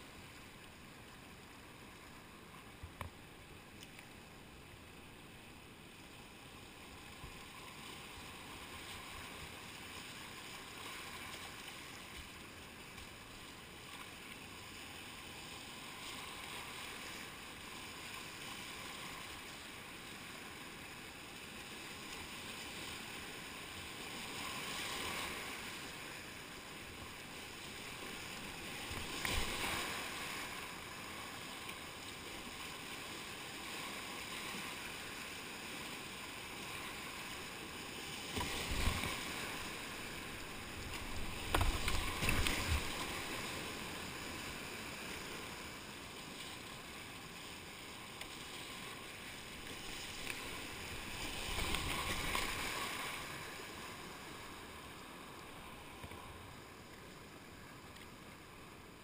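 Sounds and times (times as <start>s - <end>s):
paddle splashing in waves: 21.7s - 58.4s
whitewater rapids rushing: 48.4s - 56.5s.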